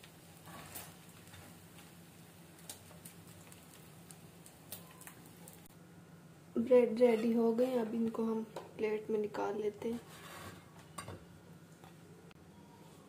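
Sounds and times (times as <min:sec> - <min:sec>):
butter crackling on hot griddle: 0:00.0 - 0:05.7
low steady hum: 0:00.0 - 0:13.0.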